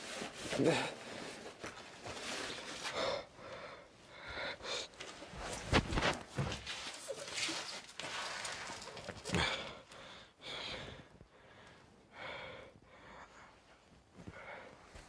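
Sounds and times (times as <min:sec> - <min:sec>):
man breathing hard: 0:02.8 - 0:05.1, 0:09.3 - 0:15.0.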